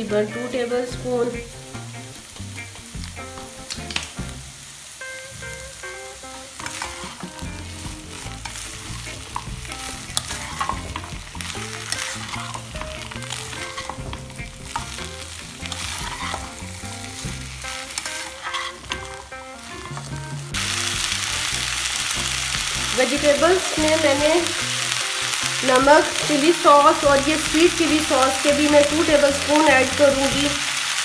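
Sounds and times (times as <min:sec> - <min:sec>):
vegetables sizzling in butter: 0:00.0 - 0:31.0
plastic spatula scraping pan: 0:15.6 - 0:16.6, 0:18.0 - 0:20.2.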